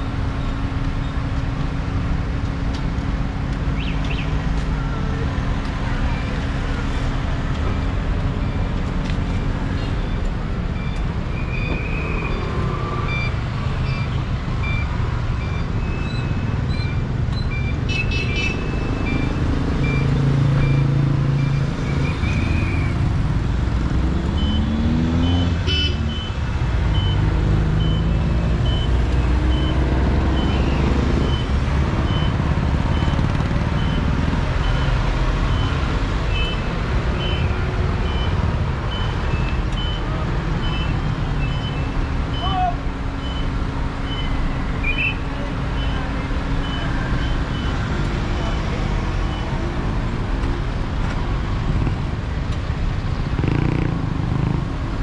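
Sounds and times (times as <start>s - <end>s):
car engines on road: 0.0s - 55.0s
engine revving: 23.8s - 26.2s.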